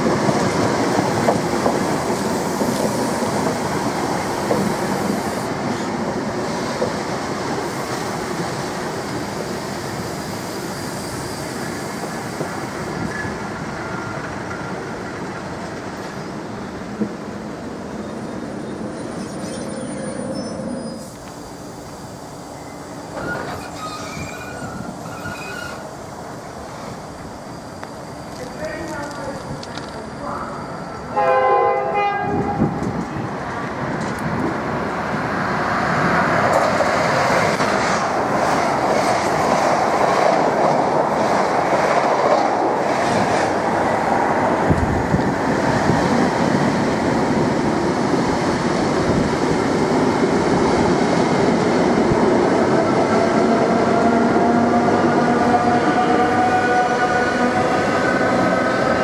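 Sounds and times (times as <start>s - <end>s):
departing train rumble: 0.0s - 59.0s
electric locomotive whine: 0.0s - 59.0s
train horn: 31.1s - 32.7s, 55.3s - 57.9s.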